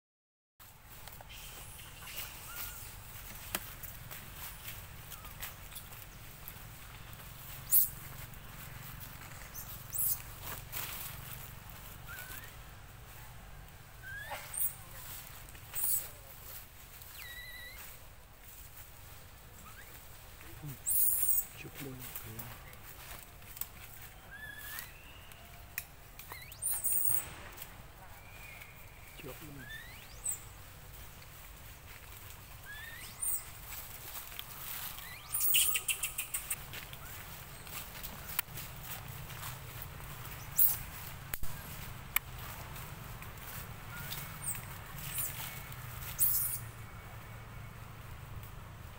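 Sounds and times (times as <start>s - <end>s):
animal squeaks and chirps: 1.3s - 3.0s, 7.6s - 7.9s, 9.5s - 10.2s, 12.0s - 12.5s, 14.0s - 14.8s, 15.7s - 16.2s, 17.1s - 17.9s, 20.8s - 21.6s, 24.3s - 25.0s, 26.2s - 27.3s, 28.3s - 30.4s, 32.6s - 33.5s, 34.9s - 36.6s, 40.5s - 40.8s, 44.0s - 46.7s
dry crackling and clicking: 21.0s - 23.9s, 33.7s - 39.1s
bird whistling upward: 24.2s - 25.4s, 32.6s - 33.4s.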